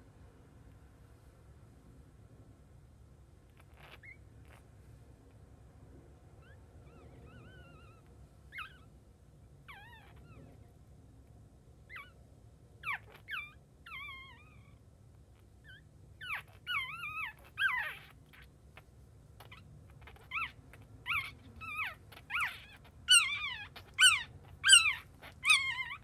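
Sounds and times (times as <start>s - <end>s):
puppy crying: 3.5s - 4.6s, 6.4s - 8.9s, 9.6s - 10.6s, 11.9s - 12.2s, 12.8s - 14.8s, 15.4s - 26.0s.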